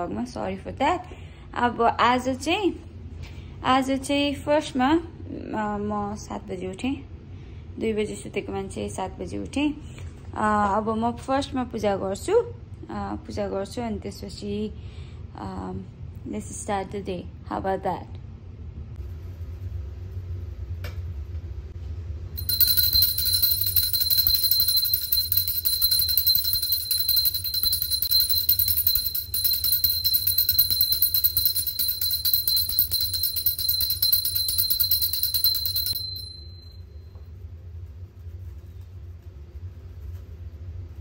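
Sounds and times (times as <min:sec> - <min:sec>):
small brass hand bell ringing: 0:22.4 - 0:36.9.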